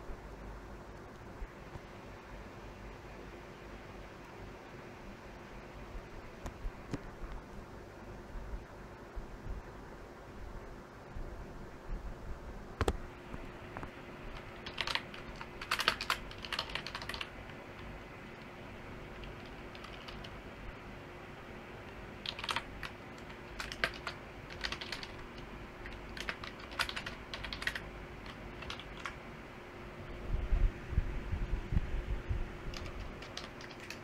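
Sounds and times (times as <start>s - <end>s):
faint steady hum: 0.0s - 34.0s
typing on computer keyboard: 14.3s - 20.4s, 21.9s - 29.2s, 32.7s - 34.0s.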